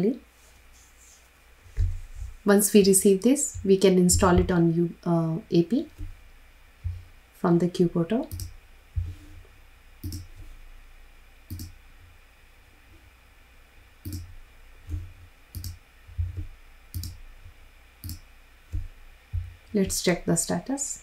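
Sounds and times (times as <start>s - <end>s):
computer mouse clicking: 8.3s - 8.5s, 10.0s - 10.4s, 11.5s - 11.8s, 14.0s - 14.3s, 14.9s - 17.2s, 18.0s - 18.9s.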